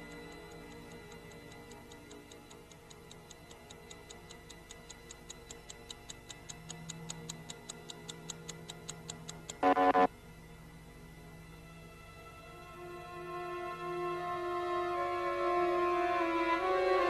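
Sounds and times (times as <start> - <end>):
rapid clock ticking: 0.0 - 10.1
low electronic hum: 0.0 - 13.8.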